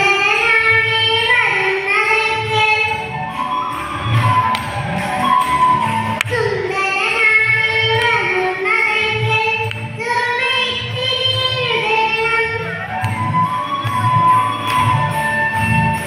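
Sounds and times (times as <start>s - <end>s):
girl singing into microphone: 0.0s - 3.2s, 6.2s - 13.2s.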